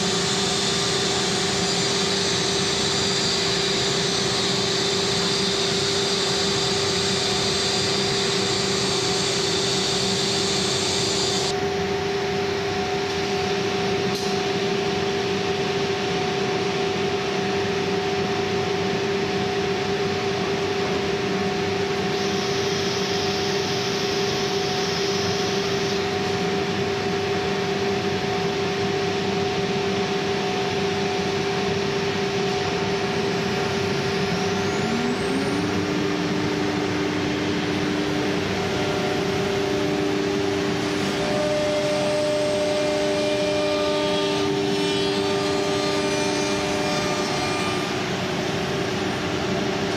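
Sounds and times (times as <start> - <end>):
router spindle whine: 0.0 - 15.4, 16.0 - 49.9
machine and extraction noise: 31.2 - 49.9.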